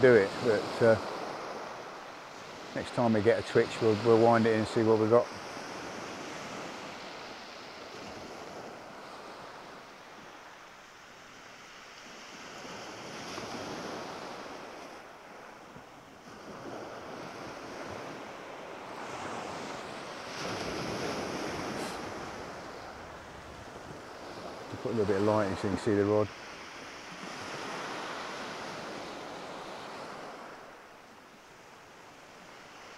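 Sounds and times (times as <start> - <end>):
surf breaking on beach: 0.0 - 10.4, 16.2 - 30.8.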